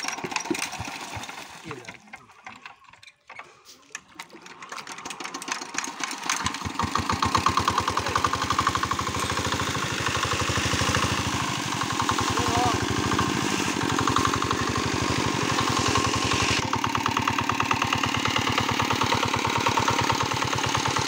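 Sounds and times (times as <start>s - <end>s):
diesel engine starting and running: 0.0s - 21.0s
water splashing into pond: 0.2s - 3.0s, 3.6s - 16.6s.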